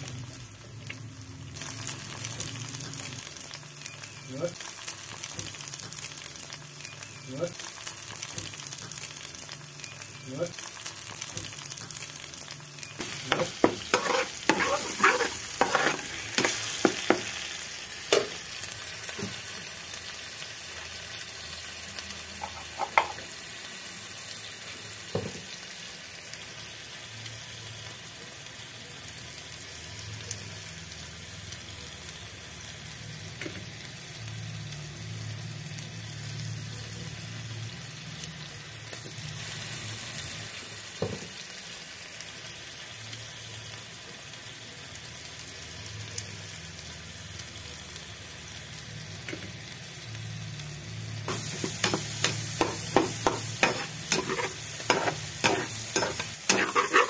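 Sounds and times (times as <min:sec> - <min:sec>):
food sizzling in a pan: 0:00.0 - 0:57.0
utensil scraping a pan: 0:13.0 - 0:17.2, 0:51.3 - 0:57.0.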